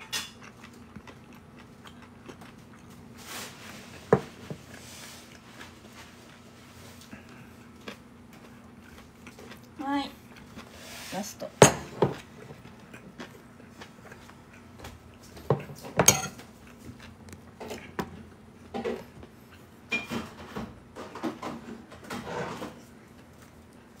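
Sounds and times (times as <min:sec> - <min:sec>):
plates and cutlery clinking: 0:15.4 - 0:16.5.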